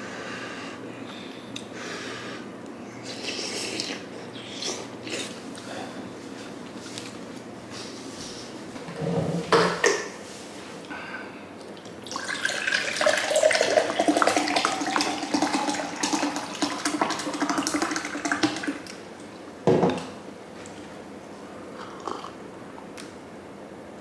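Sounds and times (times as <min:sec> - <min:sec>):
beer pouring into glass: 0:12.1 - 0:18.8.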